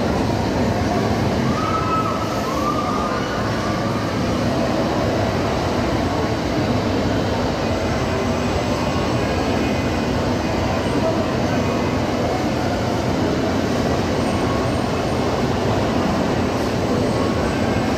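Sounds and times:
amusement park ride din: 0.0 - 17.9.

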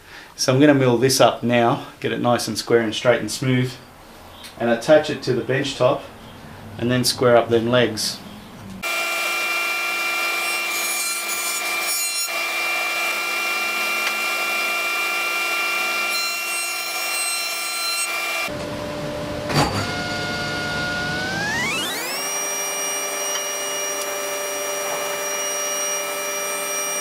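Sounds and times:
table saw motor spinning up: 8.8 - 11.0, 11.8 - 18.6, 19.7 - 27.0
jointer whining and cutting wood: 8.8 - 27.0.

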